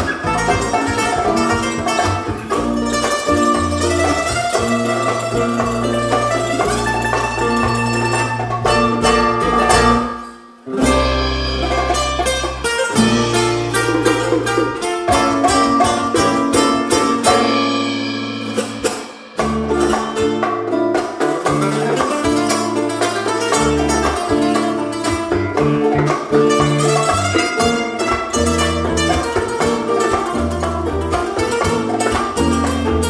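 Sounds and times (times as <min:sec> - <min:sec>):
drums: 0:00.0 - 0:33.0
electric bass: 0:00.0 - 0:33.0
hand percussion: 0:00.0 - 0:33.0
nylon-string guitar: 0:00.0 - 0:33.0.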